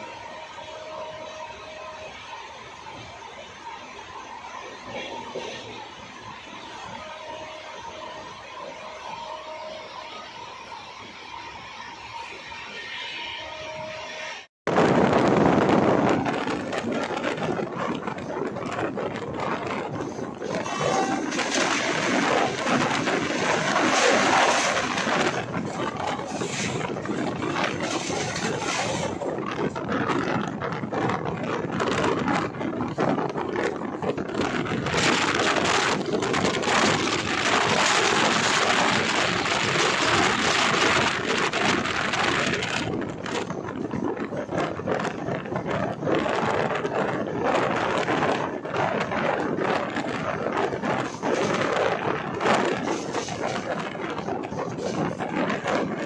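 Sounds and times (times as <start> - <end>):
train wheels clattering on rails: 14.8 - 56.0.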